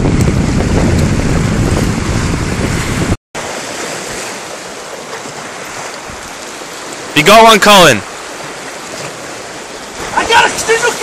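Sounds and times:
wind buffeting microphone: 0:00.0 - 0:03.2
sea waves washing against rocks: 0:00.0 - 0:11.0.

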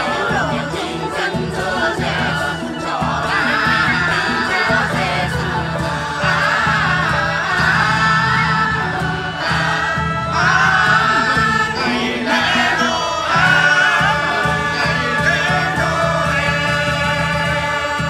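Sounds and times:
choir singing: 0:00.0 - 0:18.0.

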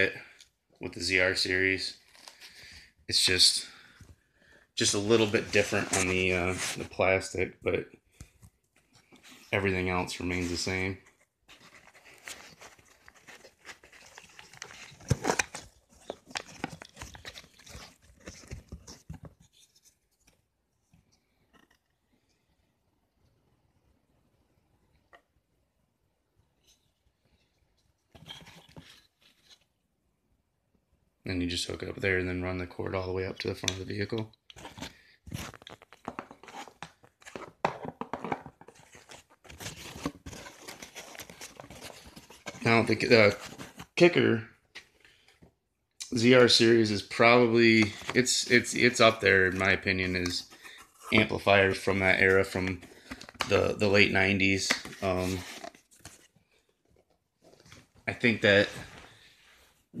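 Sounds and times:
cardboard box handling noise: 0:04.9 - 0:07.0, 0:08.2 - 0:20.0, 0:34.6 - 0:44.0, 0:54.7 - 0:58.0
packaging rustling and crinkling: 0:08.2 - 0:19.9, 0:33.7 - 0:44.0, 0:47.1 - 0:59.1.

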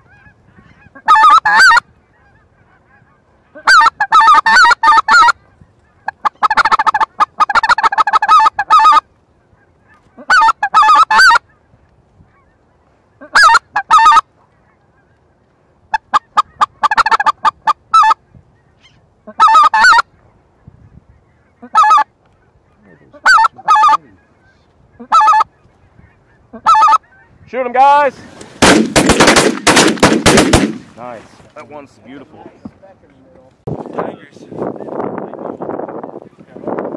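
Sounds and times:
goose call yelping: 0:00.0 - 0:11.7, 0:12.3 - 0:15.3, 0:15.9 - 0:20.3, 0:21.2 - 0:27.4.

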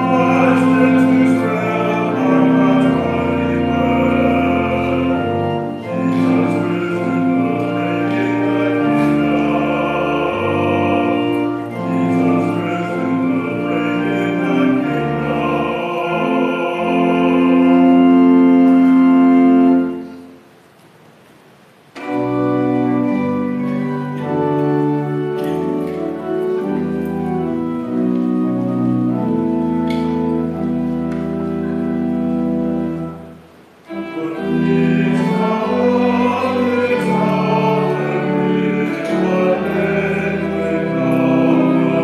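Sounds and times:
church organ chords: 0:00.0 - 0:20.8, 0:21.4 - 0:42.0.

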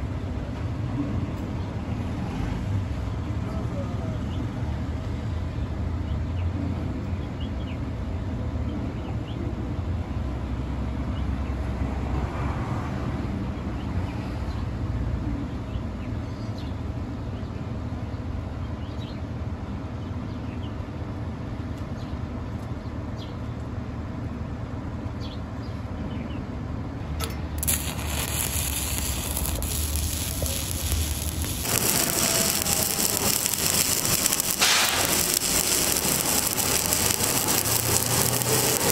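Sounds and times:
welding arc crackling sizzle: 0:27.6 - 0:38.9.

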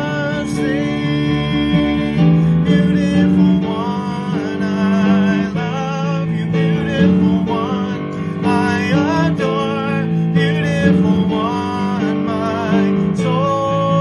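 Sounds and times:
acoustic guitar: 0:00.0 - 0:14.0
man singing: 0:00.0 - 0:14.0.

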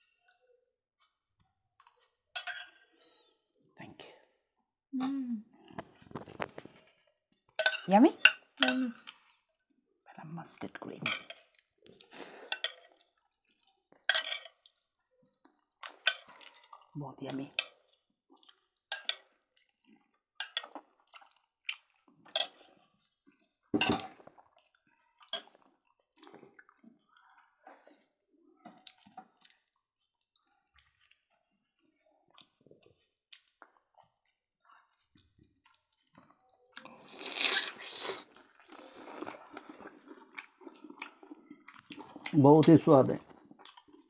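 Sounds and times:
cutlery clinking on plates: 0:02.4 - 0:02.9, 0:14.1 - 0:14.6, 0:18.9 - 0:19.3, 0:20.4 - 0:20.8, 0:23.8 - 0:24.2
chewing and lip-smacking: 0:08.9 - 0:09.8, 0:11.4 - 0:17.0, 0:17.7 - 0:23.5, 0:24.2 - 0:42.4, 0:43.2 - 0:44.0.

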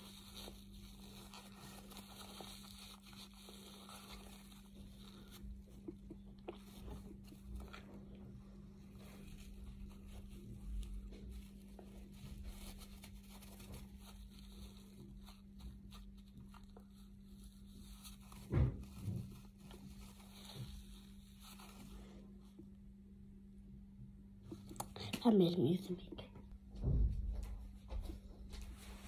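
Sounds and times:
paper tissue crinkling: 0:00.0 - 0:22.8
low thump: 0:26.7 - 0:27.6.

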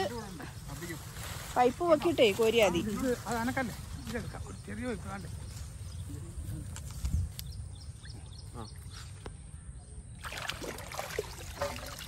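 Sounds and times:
pond water splashing and trickling: 0:10.0 - 0:12.0.

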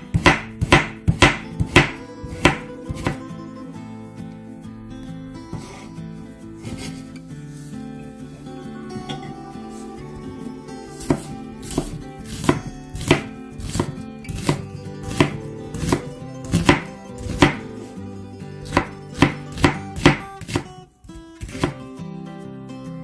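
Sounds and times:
knife chopping on wooden board: 0:00.0 - 0:03.2, 0:11.0 - 0:17.8, 0:18.6 - 0:20.7, 0:21.4 - 0:21.9
background music: 0:00.0 - 0:23.0.

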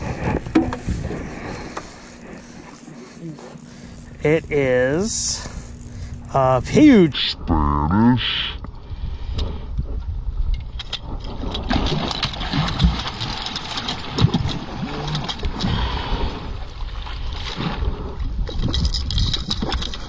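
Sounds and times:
wind rumble on microphone: 0:00.0 - 0:02.8, 0:08.6 - 0:13.3, 0:14.0 - 0:20.0
water splashing against boat: 0:11.0 - 0:20.0.

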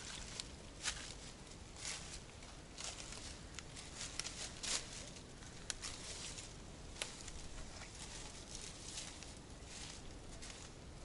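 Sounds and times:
footsteps crunching through dry leaves: 0:00.0 - 0:10.8.

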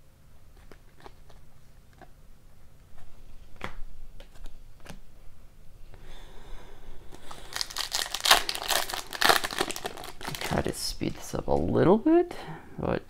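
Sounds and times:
foil wrapper crinkling and tearing: 0:07.2 - 0:11.3.

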